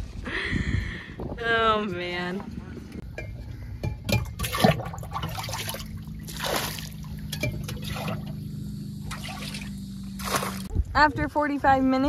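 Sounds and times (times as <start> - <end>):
low steady hum: 0.0 - 12.0
water splashing from scooping cup: 4.4 - 8.4, 9.0 - 10.7.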